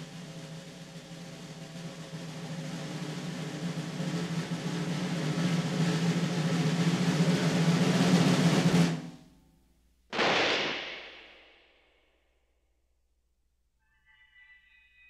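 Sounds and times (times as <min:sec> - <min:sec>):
snare drum roll: 0:00.0 - 0:09.2, 0:10.1 - 0:11.6
sharp gunshot: 0:10.1 - 0:11.7.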